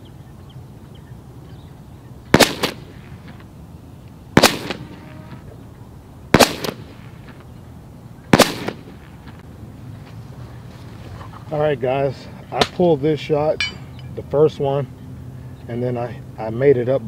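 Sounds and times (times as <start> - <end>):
air pistol double crack shots: 2.3 - 3.0, 4.4 - 5.0, 6.3 - 6.9, 8.3 - 8.9.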